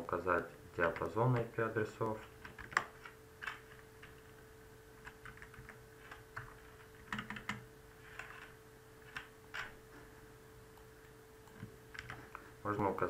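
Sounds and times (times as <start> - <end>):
faint steady hum: 0.0 - 13.0
keyboard typing: 0.8 - 4.3, 5.0 - 9.8, 11.0 - 12.4.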